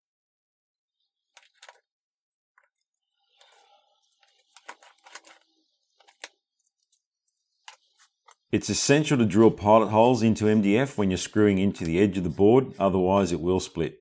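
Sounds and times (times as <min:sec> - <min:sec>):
pencil scraping on board: 0:09.3 - 0:13.7.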